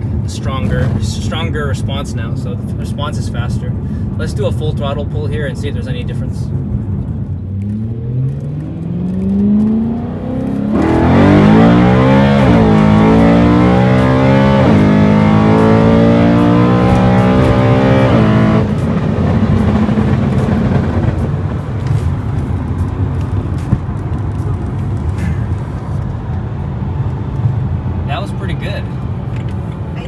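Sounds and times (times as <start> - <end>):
car engine revving in cabin: 6.6 - 28.2.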